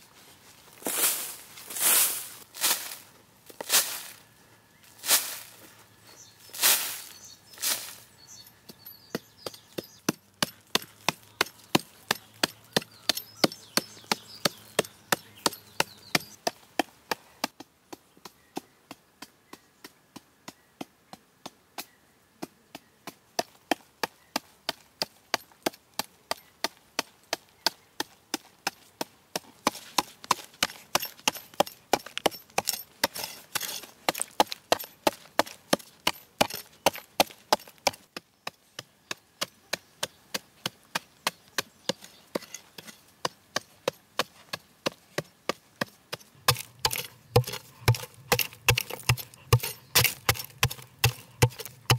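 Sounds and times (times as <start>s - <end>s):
blade chopping into hard earth: 46.1s - 51.9s.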